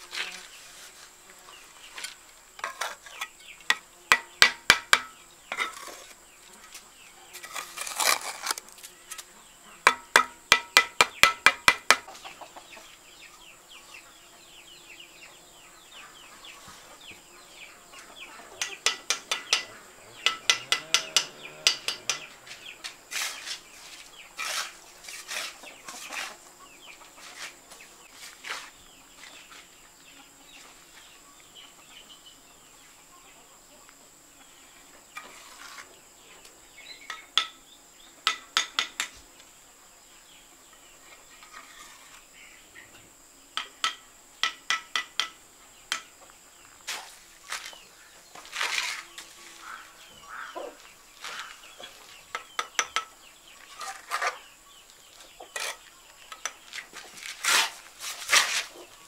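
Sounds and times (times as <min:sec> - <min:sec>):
trowel tapping bricks: 0:02.6 - 0:06.0, 0:09.9 - 0:12.1, 0:18.6 - 0:23.7, 0:38.2 - 0:39.2, 0:43.6 - 0:46.1, 0:52.3 - 0:53.1
chicken calling: 0:18.0 - 0:22.8, 0:49.5 - 0:52.1.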